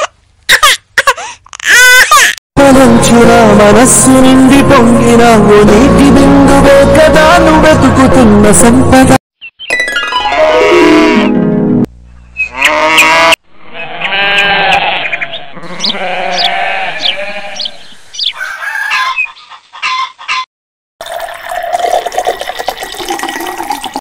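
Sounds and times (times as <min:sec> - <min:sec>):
animals bleating: 0:12.5 - 0:17.9
chickens clucking: 0:18.2 - 0:20.5
water pouring into metal bowl: 0:21.0 - 0:24.0.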